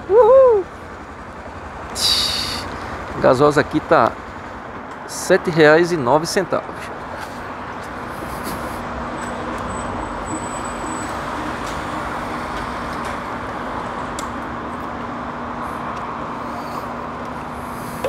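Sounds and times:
vehicle engine and traffic: 0:00.0 - 0:18.0.

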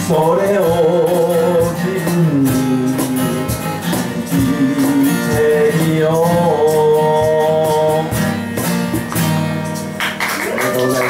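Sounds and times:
man singing: 0:00.0 - 0:08.4
acoustic guitar strumming: 0:00.0 - 0:11.0.

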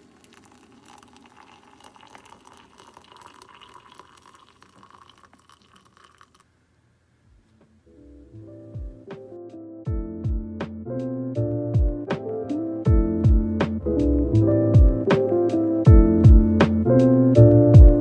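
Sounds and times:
water pouring into a mug: 0:00.0 - 0:06.5
soft background music: 0:07.8 - 0:18.0.

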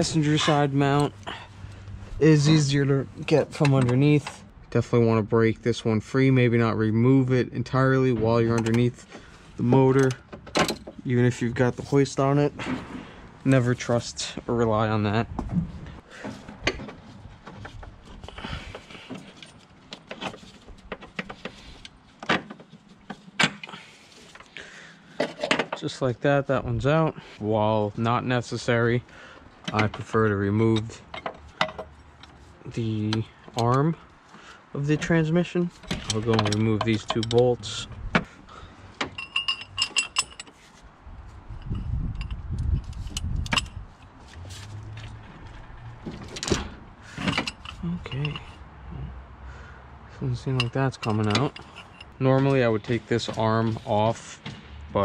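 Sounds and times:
metal clicks and knocks of bolt: 0:03.6 - 0:04.4, 0:08.4 - 0:09.0, 0:09.9 - 0:11.0, 0:30.8 - 0:32.4, 0:35.8 - 0:38.3, 0:39.0 - 0:40.6, 0:42.2 - 0:43.8, 0:50.6 - 0:52.6
metal tools clinking: 0:35.8 - 0:37.8, 0:39.0 - 0:40.7, 0:46.3 - 0:48.6, 0:50.5 - 0:53.6.

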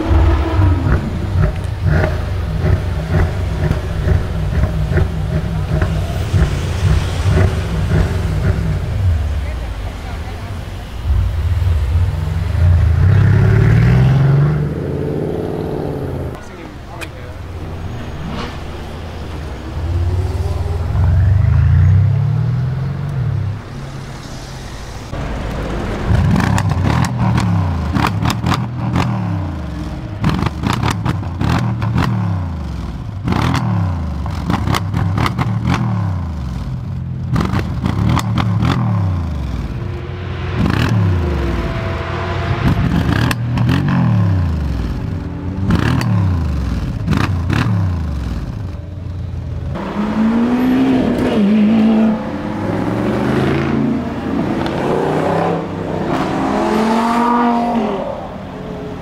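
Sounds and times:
wavering engine sound: 0:00.0 - 0:30.7, 0:38.8 - 0:47.1
car engine revving: 0:00.0 - 0:59.0
exhaust crackling and popping: 0:00.7 - 0:15.0, 0:25.1 - 0:41.7.

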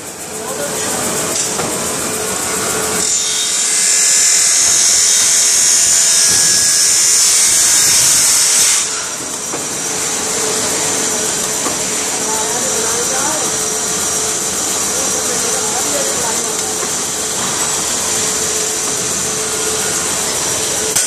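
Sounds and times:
lathe running: 0:00.0 - 0:21.0
lathe tool hissing in metal: 0:00.0 - 0:21.0.

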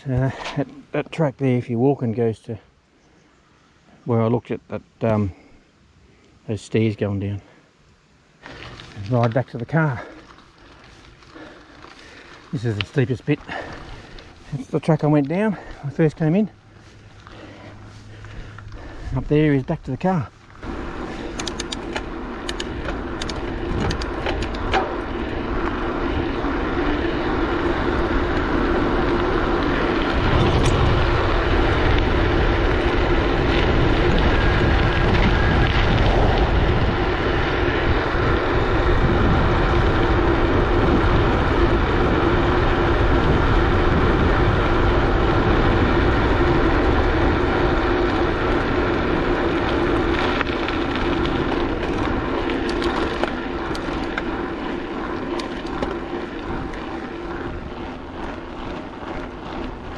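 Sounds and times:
bike tyres humming on ground: 0:05.1 - 0:59.9
wind rushing over microphone: 0:18.0 - 0:59.9
sharp clicks: 0:21.3 - 0:24.8.

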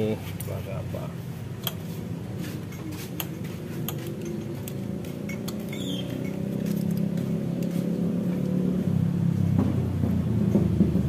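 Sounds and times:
vehicle engine rumbling: 0:00.0 - 0:11.0
light metal clicks and taps: 0:01.6 - 0:01.8.

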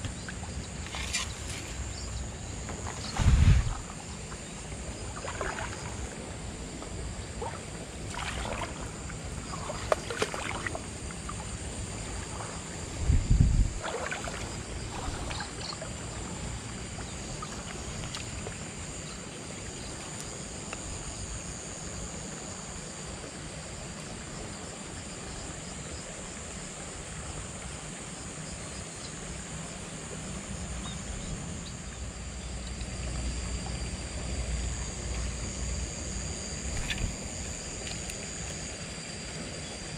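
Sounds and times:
high insect trill: 0:00.0 - 0:39.9
low rumble: 0:03.0 - 0:04.0, 0:12.8 - 0:13.8.

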